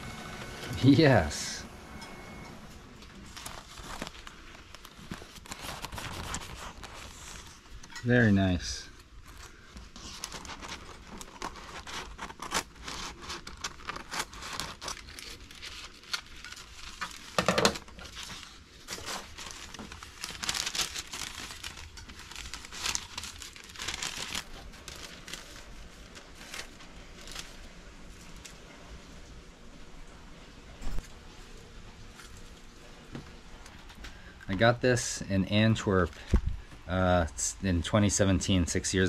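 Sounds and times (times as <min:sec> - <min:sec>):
paper rustling and crinkling: 0:03.0 - 0:29.1
scissors snipping paper: 0:10.0 - 0:17.2.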